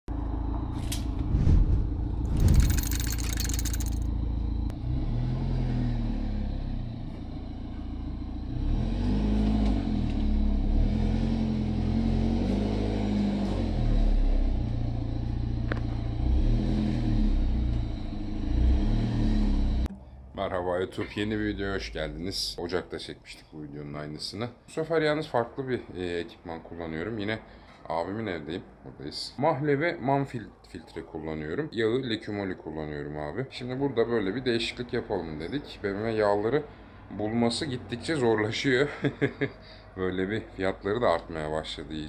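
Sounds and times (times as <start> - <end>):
car engine revving: 8.2 - 19.9.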